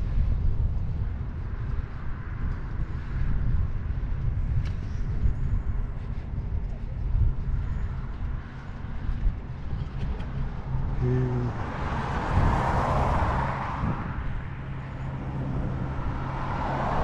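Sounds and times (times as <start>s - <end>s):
wind buffeting the microphone: 0.0s - 17.0s
car passing: 7.6s - 17.0s.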